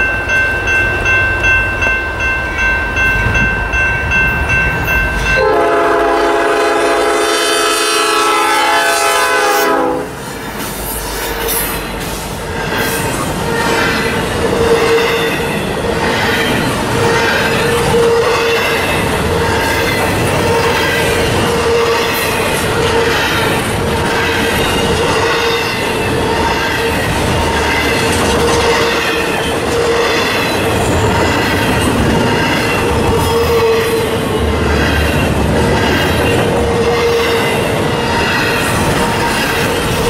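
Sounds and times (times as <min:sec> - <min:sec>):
bell ringing: 0:00.0 - 0:05.5
locomotive air horn: 0:05.4 - 0:10.2
freight cars rumbling over rails: 0:08.8 - 0:40.0.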